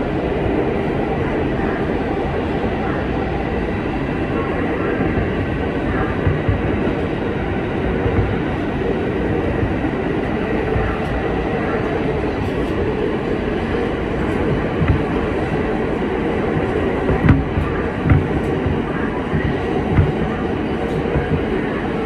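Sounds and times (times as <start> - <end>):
wheels rumbling on rail: 0.0 - 22.0
sharp knocks: 17.1 - 18.8.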